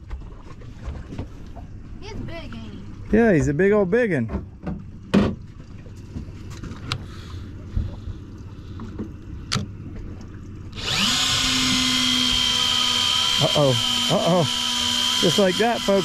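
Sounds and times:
fishing reel motor whining: 0:10.7 - 0:16.0.

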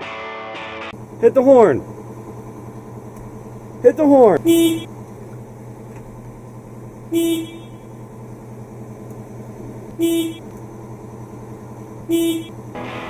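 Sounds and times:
steady low hum: 0:01.0 - 0:13.0
tractor horn honking: 0:04.3 - 0:04.9, 0:07.1 - 0:08.0, 0:10.0 - 0:10.5, 0:12.1 - 0:13.0.

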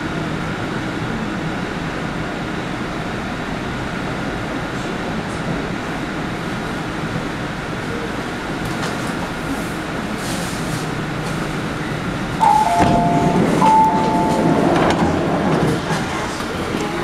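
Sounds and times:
electric train running and stopping: 0:10.3 - 0:17.0
two-tone door chime: 0:12.4 - 0:15.3
platform noise: 0:12.4 - 0:17.0.

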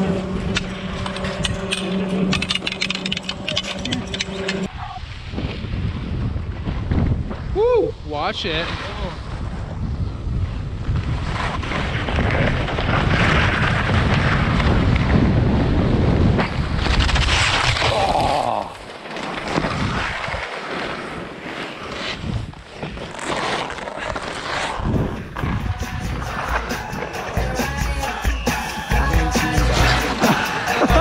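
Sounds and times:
skis scraping over snow: 0:00.0 - 0:06.0, 0:08.2 - 0:18.0, 0:18.6 - 0:27.4
wind buffeting microphone: 0:03.4 - 0:17.9, 0:24.7 - 0:27.0.

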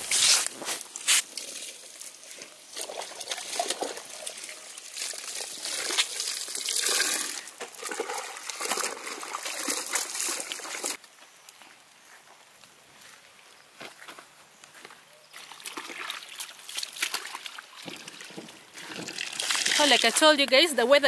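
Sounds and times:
water splashing and trickling: 0:00.6 - 0:11.0, 0:15.3 - 0:21.0.

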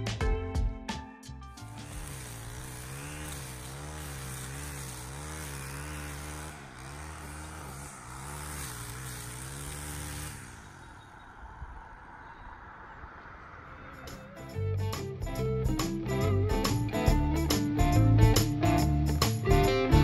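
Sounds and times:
distant string trimmer running: 0:01.7 - 0:11.6, 0:15.8 - 0:20.0.

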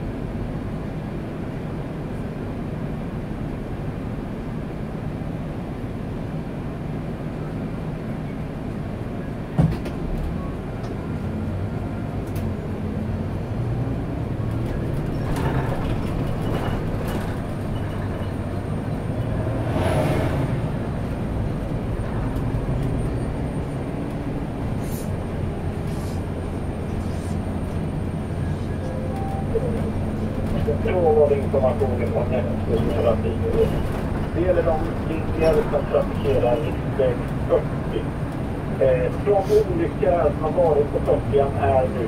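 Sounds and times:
bus diesel engine hum: 0:00.0 - 0:42.0
road noise: 0:00.0 - 0:42.0.

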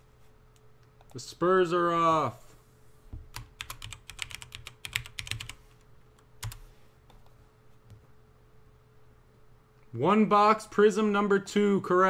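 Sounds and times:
typing on computer keyboard: 0:03.3 - 0:05.6, 0:06.4 - 0:07.2.

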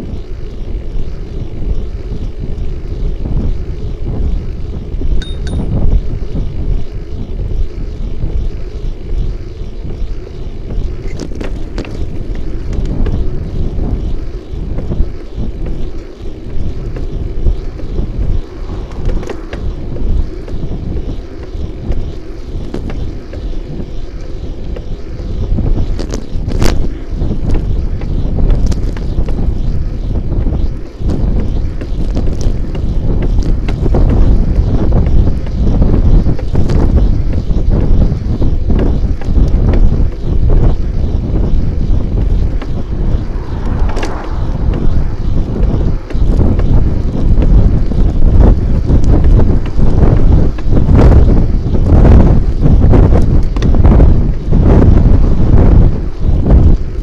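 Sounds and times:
wind buffeting microphone: 0:00.0 - 0:57.0
bike clicks and rattles: 0:06.7 - 0:13.8.

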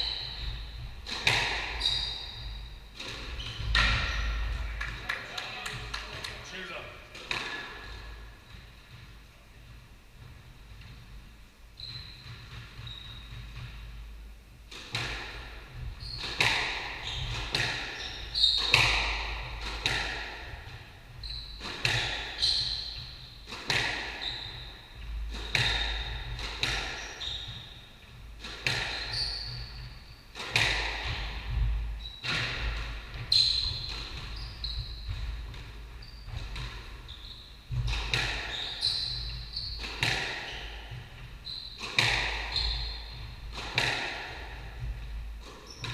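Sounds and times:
squash ball hits: 0:00.0 - 0:05.0, 0:07.2 - 0:09.1, 0:14.7 - 0:27.8, 0:28.4 - 0:37.1, 0:37.7 - 0:45.9
shoes squeaking on wooden floor: 0:00.0 - 0:11.2, 0:11.8 - 0:14.0, 0:15.2 - 0:45.9.

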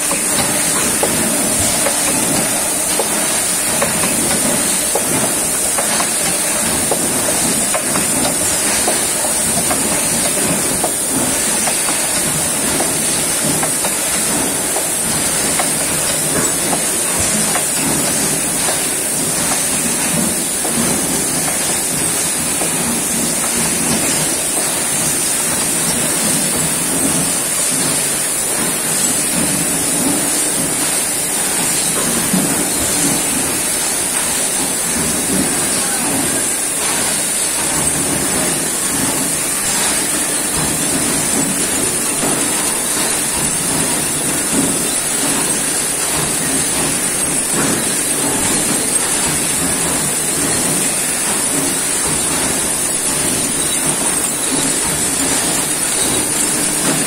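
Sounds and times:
machinery mechanical din: 0:00.0 - 0:57.0.

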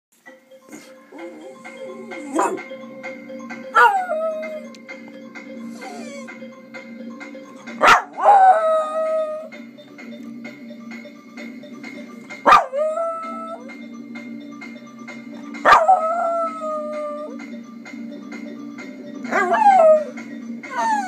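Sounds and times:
music with steady beat: 0:00.1 - 0:21.0
dog howling: 0:01.1 - 0:02.7, 0:03.7 - 0:04.7, 0:05.7 - 0:06.4, 0:07.8 - 0:09.5, 0:12.5 - 0:13.7, 0:15.7 - 0:17.4, 0:19.3 - 0:21.0.

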